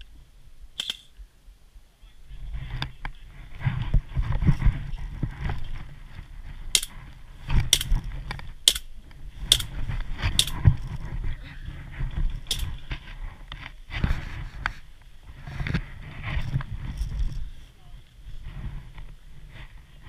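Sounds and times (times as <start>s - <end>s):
low rumble of movement: 2.3s - 20.0s
airsoft guns firing: 8.6s - 8.9s, 9.5s - 9.7s, 10.4s - 10.6s.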